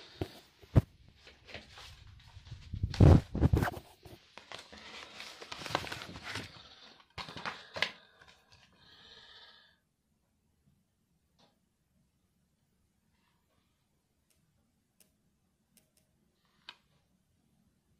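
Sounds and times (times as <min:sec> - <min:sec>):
plastic bag rustling: 0:01.6 - 0:07.9.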